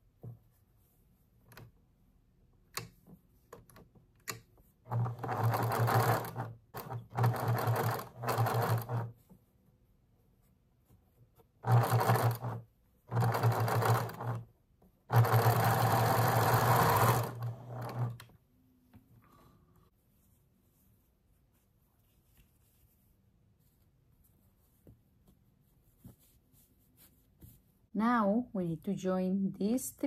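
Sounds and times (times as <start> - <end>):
sewing machine stitching: 4.9 - 9.1, 11.6 - 14.5, 15.1 - 18.3.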